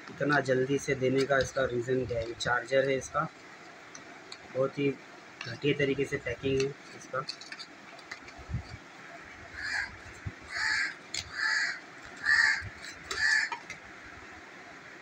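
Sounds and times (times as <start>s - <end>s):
bird calling: 9.5s - 13.7s.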